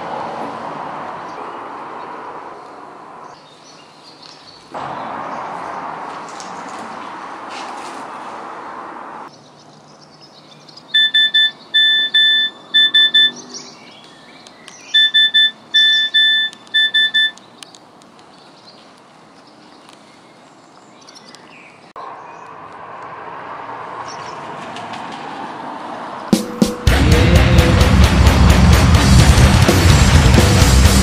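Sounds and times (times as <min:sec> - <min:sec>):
phone message alert beeps: 0:11.0 - 0:13.4, 0:15.0 - 0:17.4.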